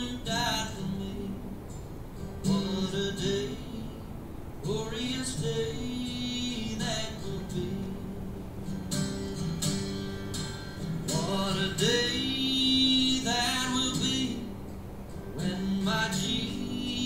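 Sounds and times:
guitar: 0.0 - 17.0
person singing: 2.5 - 8.4, 11.1 - 14.6, 15.4 - 17.0.

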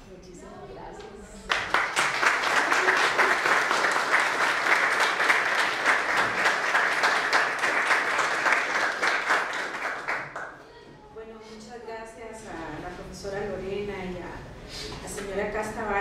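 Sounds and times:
audience applauding: 1.5 - 10.6.

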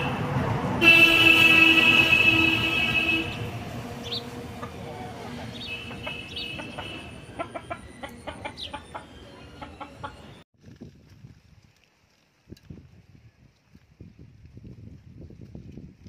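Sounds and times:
chickens clucking: 4.0 - 10.4.

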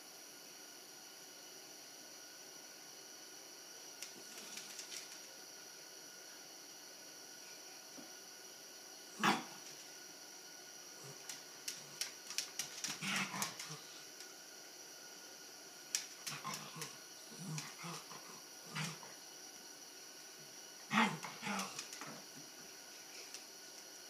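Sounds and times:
claws clicking on wooden floor: 11.1 - 13.8
small dogs vocalizing: 12.8 - 14.0, 16.2 - 19.1, 20.9 - 21.9.

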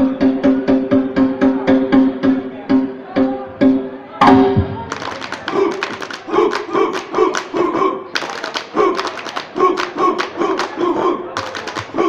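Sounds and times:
body percussion slaps and claps: 4.9 - 12.0.

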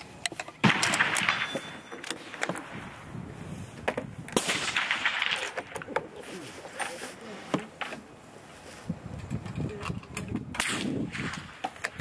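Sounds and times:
rifle shot: 0.6 - 2.8, 4.3 - 5.8, 10.5 - 12.0.

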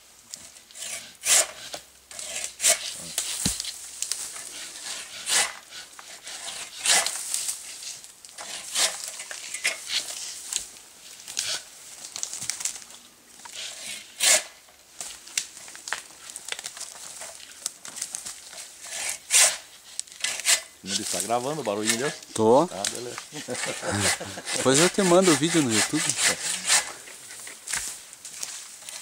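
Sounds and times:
saw rasping through wood: 0.8 - 3.3, 4.5 - 7.2, 8.4 - 9.0, 13.5 - 14.5, 18.8 - 22.8, 23.4 - 27.5.

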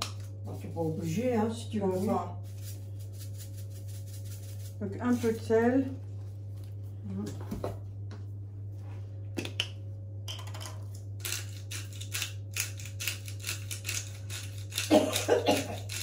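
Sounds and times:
salt grinder crunching clicks: 11.2 - 15.2.

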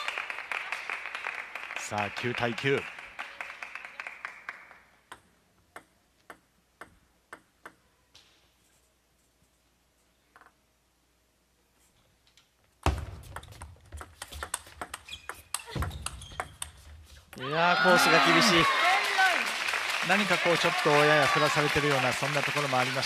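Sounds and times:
light applause: 0.0 - 5.0, 17.4 - 23.0
table tennis ball bouncing: 5.1 - 7.9, 12.8 - 17.0
table tennis ball hits: 12.8 - 17.0.

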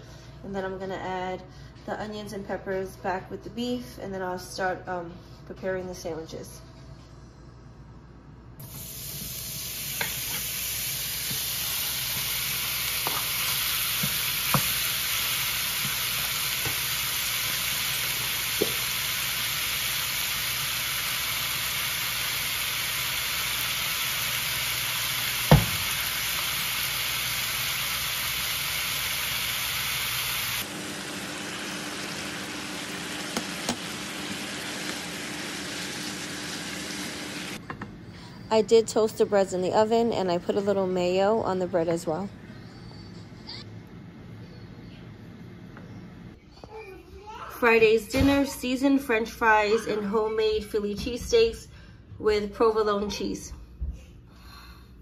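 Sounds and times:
beef sizzling in hot oil: 8.6 - 37.6
wooden spatula knocking on pan: 25.5 - 25.8.

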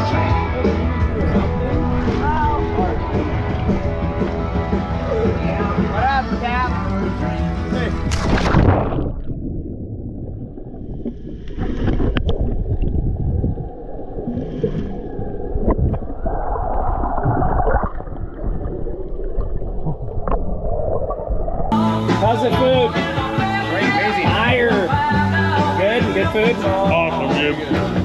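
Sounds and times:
underwater rumbling wash: 0.0 - 22.3
splash: 8.0 - 21.8.

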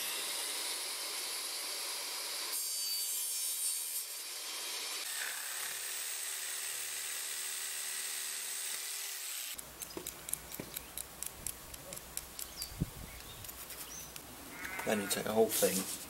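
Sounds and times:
electric saw cutting: 0.0 - 9.6.

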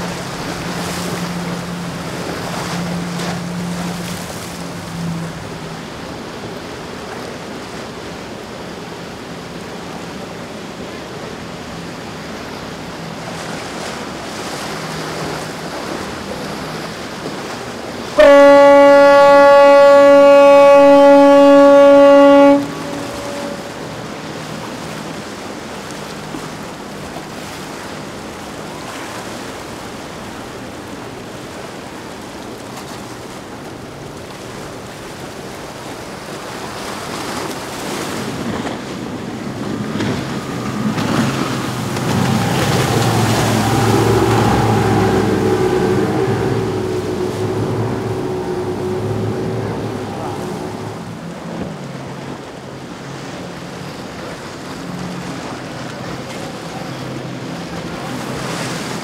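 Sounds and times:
ship's horn blast: 0.0 - 6.4, 14.4 - 25.7, 35.1 - 59.0
waves washing: 0.0 - 59.0.

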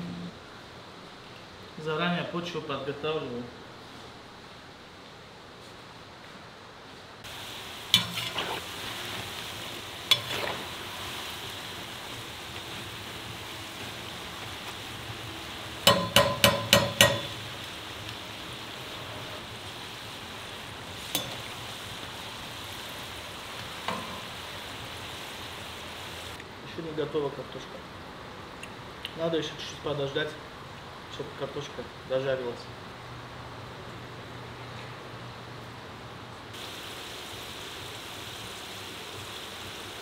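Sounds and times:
fries sizzling in hot oil: 7.2 - 26.4, 36.5 - 40.0
metal utensil clinking on pot: 15.9 - 17.4, 21.1 - 21.4.

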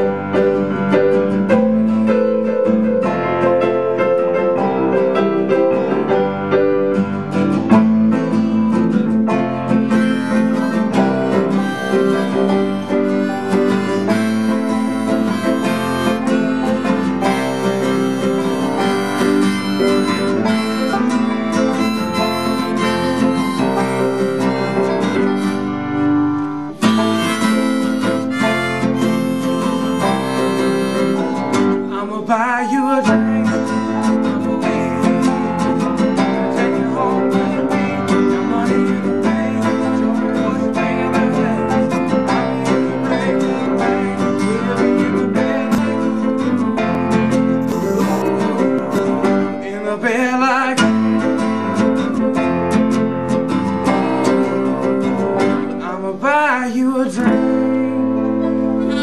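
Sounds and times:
strummed acoustic guitar: 0.0 - 59.0
harmonica holding long notes: 9.4 - 39.6, 42.4 - 49.6, 58.6 - 59.0.

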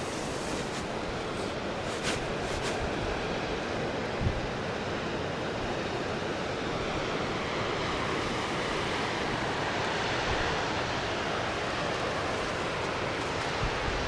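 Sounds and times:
wind buffeting microphone: 13.4 - 14.0.

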